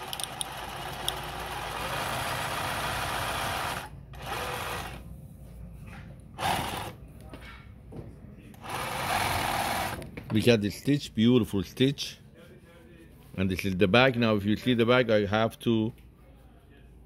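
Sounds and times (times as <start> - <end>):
sewing machine running: 0.0 - 5.0, 6.4 - 7.0, 8.6 - 10.0.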